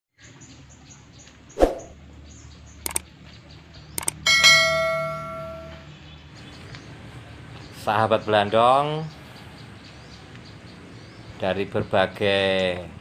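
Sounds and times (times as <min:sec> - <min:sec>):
whoosh hit: 0:01.6 - 0:02.0
mouse clicks: 0:02.8 - 0:03.0, 0:04.0 - 0:04.2
faint high chirps: 0:04.0 - 0:05.9
bell ding: 0:04.3 - 0:05.9.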